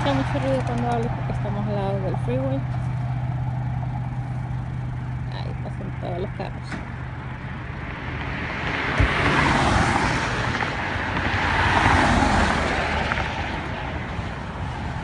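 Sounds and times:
vehicles passing on freeway: 0.0 - 15.0
low thump: 8.9 - 9.4.

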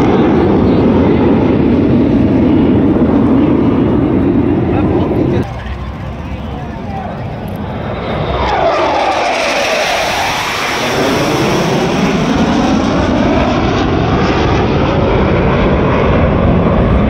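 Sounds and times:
jet aircraft roaring past: 0.0 - 17.0.

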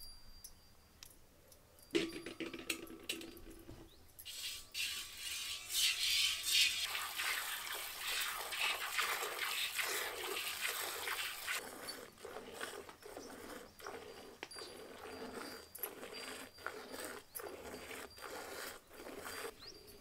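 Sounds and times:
milk squirting into steel pot: 4.3 - 19.6.

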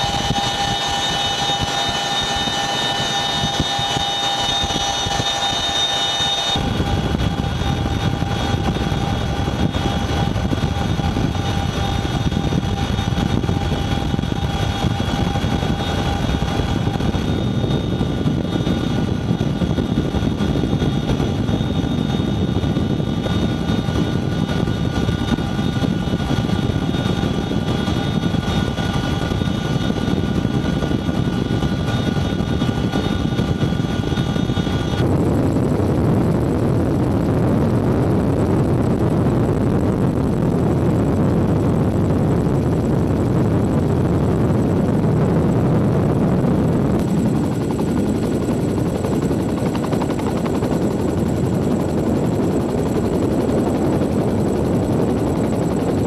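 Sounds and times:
helicopter rotor and turbine noise: 0.0 - 56.0
high steady whining tones: 0.0 - 56.0.

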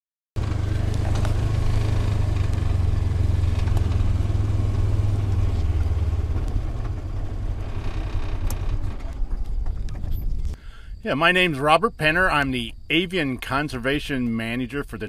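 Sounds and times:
utility vehicle engine running: 0.4 - 10.6.

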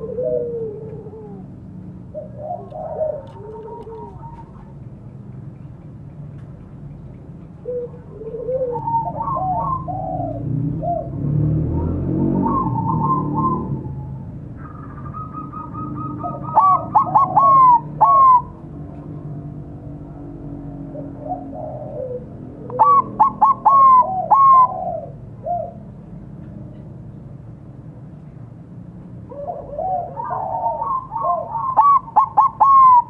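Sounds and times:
dove cooing: 0.0 - 5.0, 7.6 - 18.7, 20.9 - 26.0, 29.3 - 33.0.

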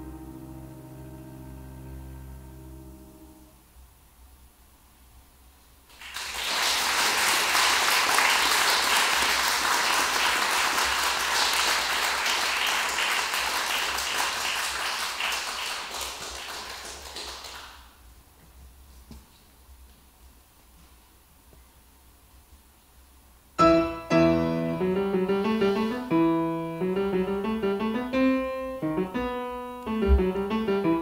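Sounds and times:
audience applauding: 5.9 - 17.9.

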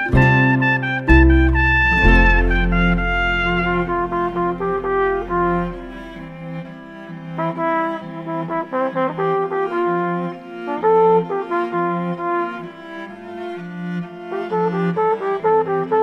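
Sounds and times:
trumpets playing held notes in harmony: 0.0 - 6.6.

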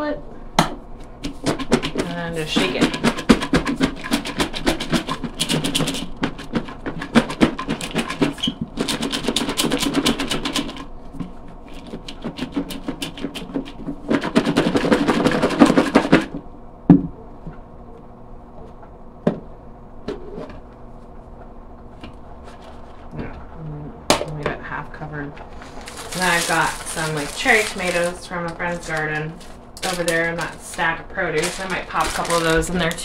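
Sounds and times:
salad rattling in shaken bowl: 25.4 - 33.0.

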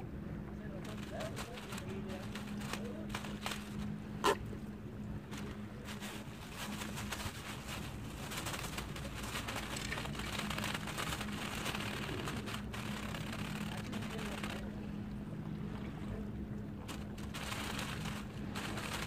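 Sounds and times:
low hum: 0.0 - 19.0
water splashing against rocks: 5.3 - 14.7.

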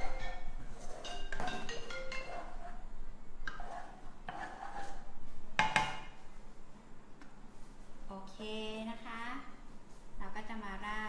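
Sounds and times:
marimba-like mallet melody: 0.0 - 2.5.

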